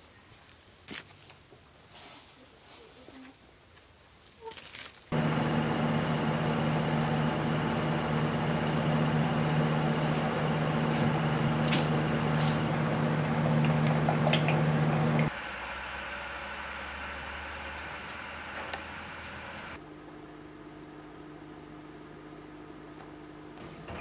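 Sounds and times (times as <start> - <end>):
machine hum with whir: 5.1 - 24.0
quieter steady hum: 5.1 - 24.0.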